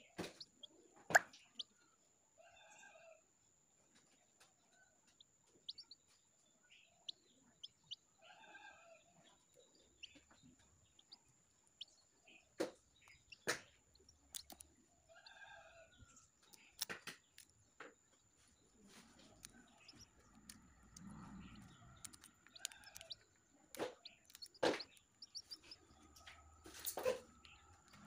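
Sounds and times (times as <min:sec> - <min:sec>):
chick chirps: 0:05.1 - 0:06.1, 0:06.8 - 0:12.0, 0:12.6 - 0:17.5, 0:18.9 - 0:28.0
eggshell clicks and crackles: 0:12.6 - 0:15.3, 0:15.9 - 0:28.0.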